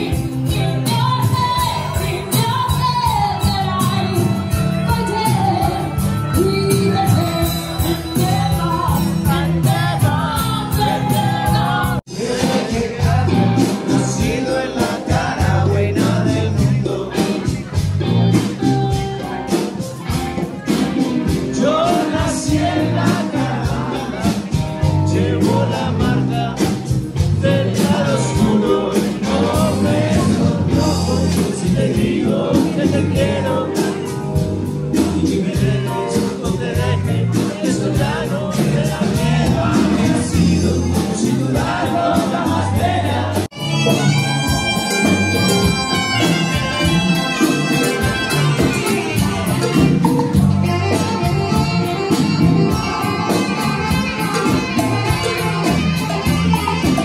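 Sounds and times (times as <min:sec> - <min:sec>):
people singing: 0:00.0 - 0:17.9, 0:20.6 - 0:57.0
live band playing: 0:00.0 - 0:57.0
alto saxophone solo: 0:43.5 - 0:57.0.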